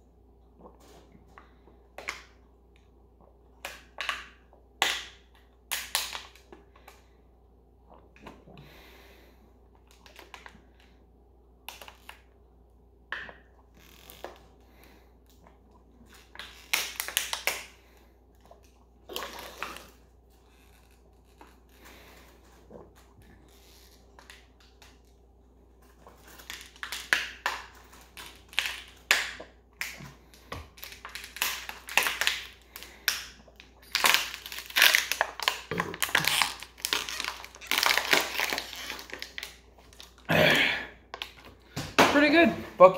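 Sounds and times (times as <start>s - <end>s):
plastic bottle crinkling: 16.0s - 17.8s, 25.8s - 40.3s.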